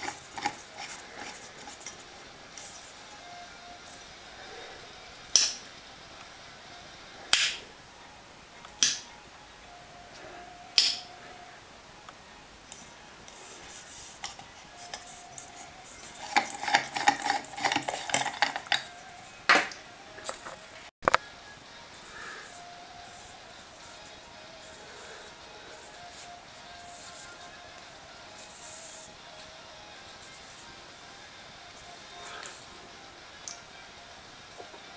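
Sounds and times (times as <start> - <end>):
sharp lamp clicks: 5.3 - 5.6, 8.7 - 9.1, 10.8 - 11.1.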